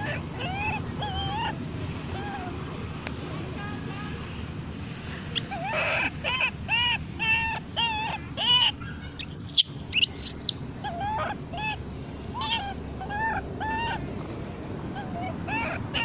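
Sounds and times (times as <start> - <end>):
shrill monkey squeals: 0.0 - 1.6, 5.4 - 14.0, 15.0 - 16.0
baby monkey whimpering: 0.0 - 2.6, 5.4 - 14.1, 14.9 - 16.0.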